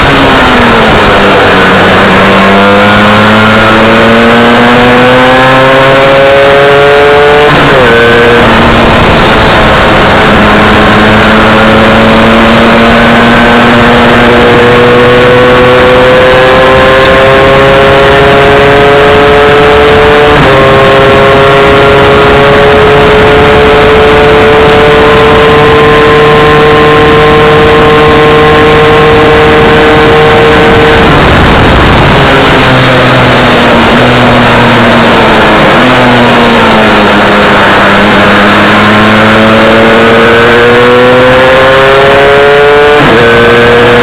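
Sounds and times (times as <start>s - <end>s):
two-stroke race bike engine revving: 0.0s - 44.0s
wind noise: 0.0s - 44.0s.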